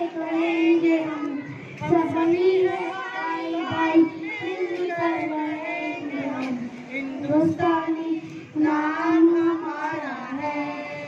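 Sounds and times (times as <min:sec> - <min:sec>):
children singing together: 0:00.0 - 0:11.0.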